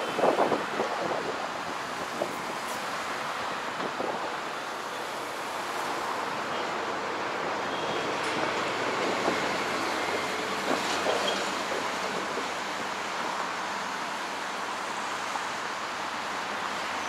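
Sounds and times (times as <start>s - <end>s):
wind buffeting microphone: 0.0s - 2.7s, 3.6s - 4.5s
road traffic hum: 0.0s - 17.0s.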